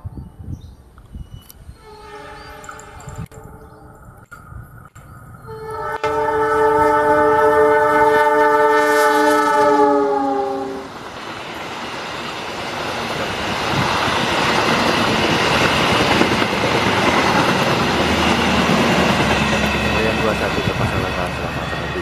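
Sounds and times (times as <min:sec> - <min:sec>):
locomotive horn blast: 0:01.8 - 0:03.8, 0:05.4 - 0:10.9
train cars rumbling past: 0:05.4 - 0:22.0.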